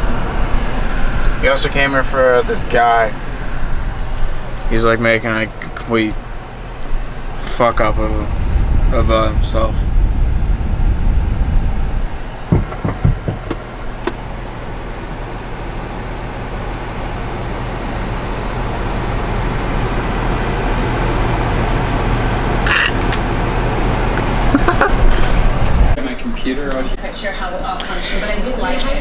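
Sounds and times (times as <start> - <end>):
car road and engine noise: 0.0 - 27.0
short knocks: 12.5 - 14.2.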